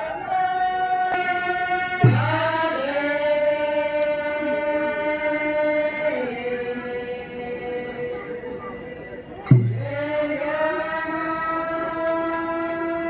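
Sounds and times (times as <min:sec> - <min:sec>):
group singing a chant: 0:00.0 - 0:13.0.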